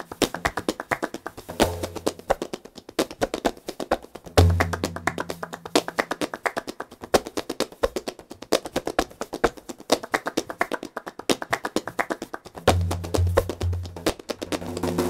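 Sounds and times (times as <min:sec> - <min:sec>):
rhythmic hand-clapping: 0:00.0 - 0:15.0
backing music: 0:04.3 - 0:06.0, 0:12.6 - 0:15.0.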